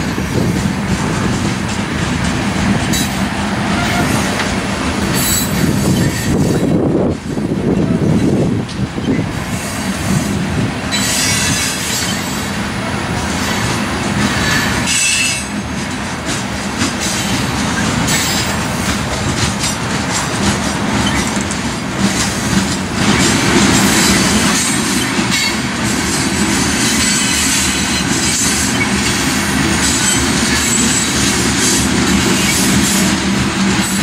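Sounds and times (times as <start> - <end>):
train wheels clacking on rails: 0.0 - 34.0
high wheel squeal: 5.0 - 6.8, 10.9 - 12.4, 14.3 - 15.6.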